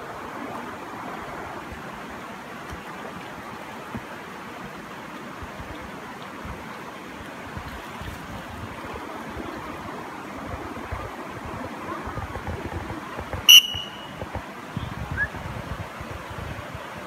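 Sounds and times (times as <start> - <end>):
river water rushing over rapids: 0.0 - 17.0
sharp high-pitched ringing: 13.5 - 14.2.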